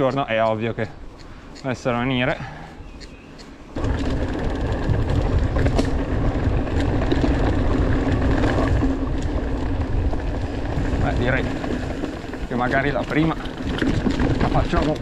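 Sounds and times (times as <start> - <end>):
bike clicks and rattles: 0.0 - 15.0
bike tyres rolling over dirt: 3.8 - 15.0
wind rumble on microphone: 3.8 - 15.0.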